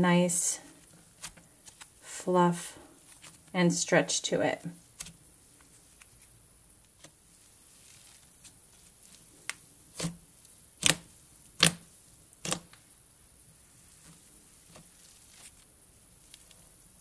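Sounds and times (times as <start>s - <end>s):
slime crackling pops: 10.8s - 11.8s.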